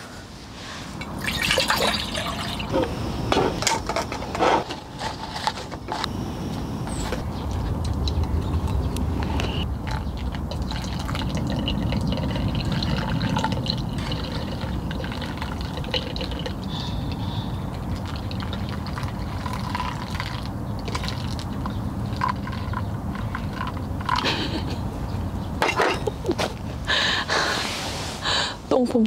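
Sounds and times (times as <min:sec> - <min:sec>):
water pouring onto coffee: 0:01.2 - 0:02.7, 0:09.9 - 0:16.6
coffee dripping through filter: 0:09.8 - 0:24.2.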